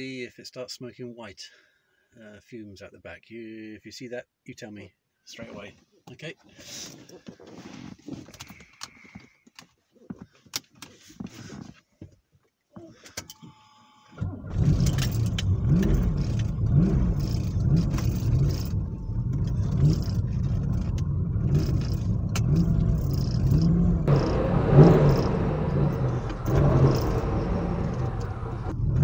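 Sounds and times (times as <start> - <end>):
car engine starting and revving: 14.2 - 29.0.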